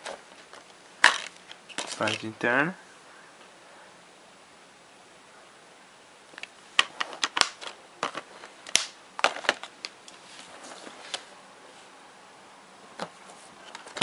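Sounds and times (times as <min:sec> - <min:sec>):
plastic cases clicking and clacking: 0:06.4 - 0:10.0, 0:13.0 - 0:14.0.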